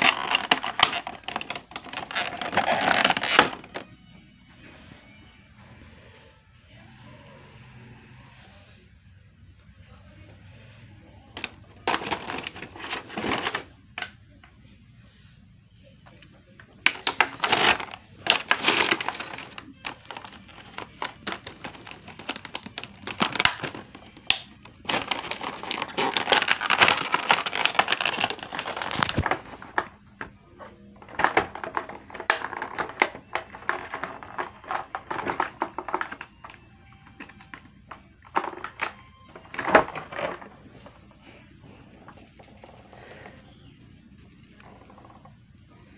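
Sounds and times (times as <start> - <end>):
plastic packaging crinkling: 0.0 - 3.9, 11.4 - 13.7, 16.8 - 29.9.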